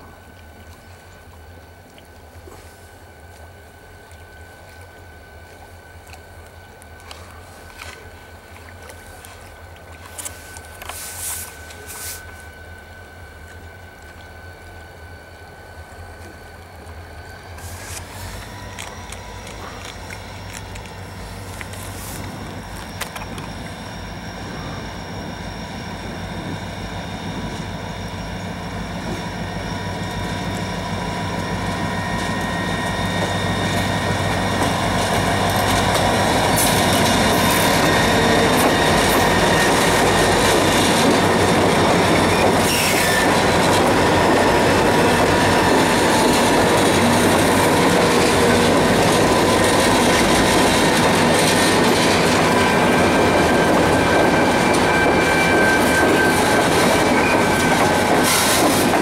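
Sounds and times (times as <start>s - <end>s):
diesel locomotive engine: 0.0s - 59.0s
train wheels on rails: 15.6s - 59.0s.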